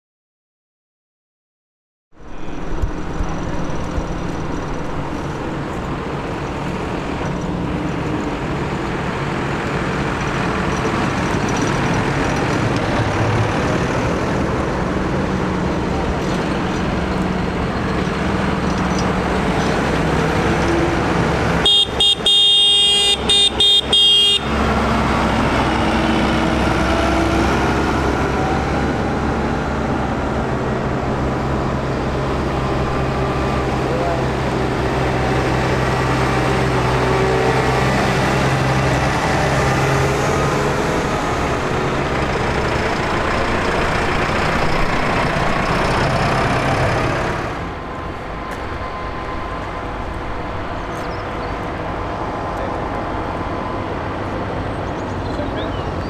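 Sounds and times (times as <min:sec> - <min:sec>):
tractor diesel engines running: 0:02.2 - 0:56.0
vehicle horn: 0:21.6 - 0:24.6.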